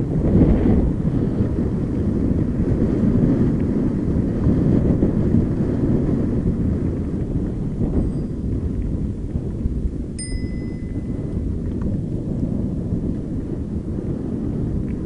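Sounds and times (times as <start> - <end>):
wind rumbling on microphone: 0.0 - 15.0
bike rolling over gravel: 1.0 - 10.2.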